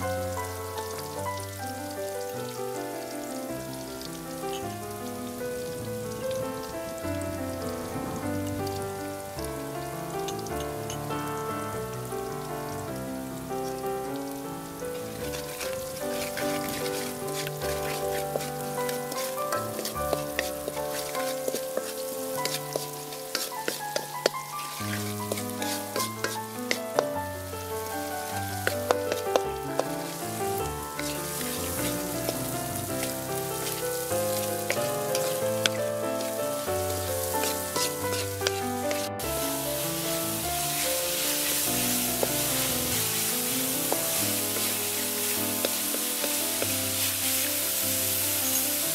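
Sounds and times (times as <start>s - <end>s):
vegetables sizzling in a wok: 0.0s - 48.9s
background music: 3.3s - 48.9s
wooden spatula scraping a wok: 15.0s - 48.9s.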